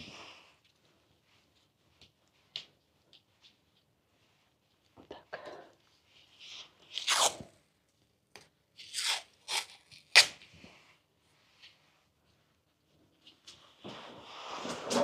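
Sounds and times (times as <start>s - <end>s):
adhesive tape crackling rasps: 8.8s - 10.4s.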